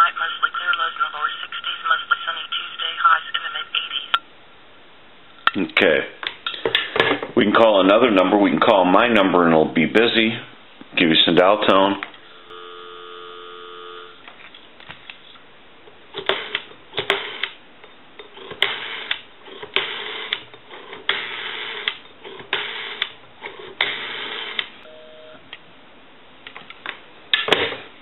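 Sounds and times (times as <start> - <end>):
busy signal beep: 12.3 - 14.2, 24.8 - 25.4
telephone dial tone: 12.3 - 14.2, 23.8 - 25.4.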